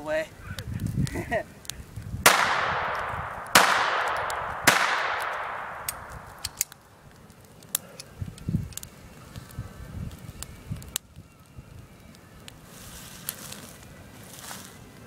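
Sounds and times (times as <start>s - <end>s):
pistol shot echoing: 2.3s - 6.8s.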